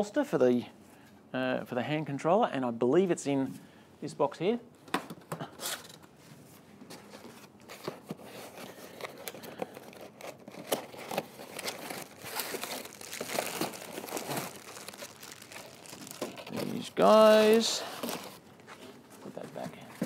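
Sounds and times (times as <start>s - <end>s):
cardboard rustling and scraping: 5.6s - 20.0s.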